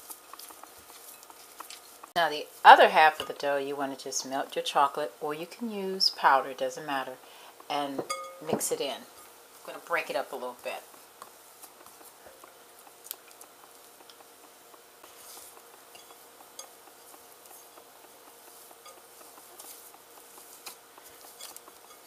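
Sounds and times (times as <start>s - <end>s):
utensil clinking and scraping a bowl: 0.0s - 4.8s, 7.9s - 22.0s.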